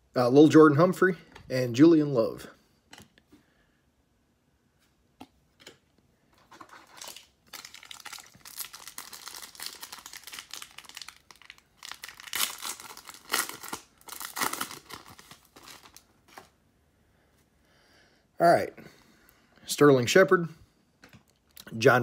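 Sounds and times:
foil wrapper crinkling and ripping: 6.8 - 16.5.

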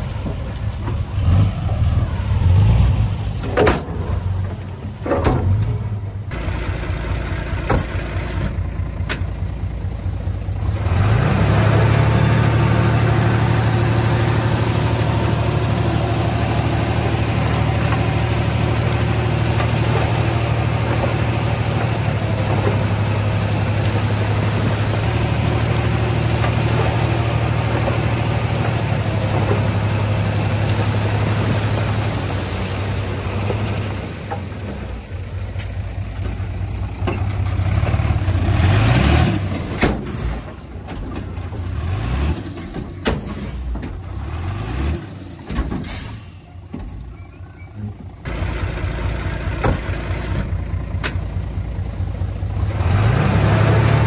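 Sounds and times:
heavy diesel engine running: 0.0 - 54.0
knocks and clanks: 3.4 - 6.0, 7.6 - 9.4, 39.5 - 44.2, 45.4 - 47.2.

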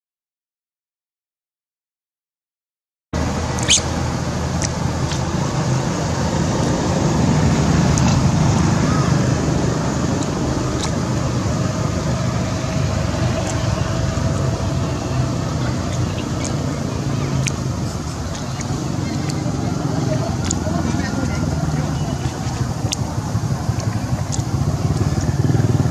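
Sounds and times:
outdoor background rumble: 3.2 - 25.9
sharp clicks: 3.6 - 4.0, 4.6 - 5.3, 10.1 - 11.0, 23.7 - 25.4.

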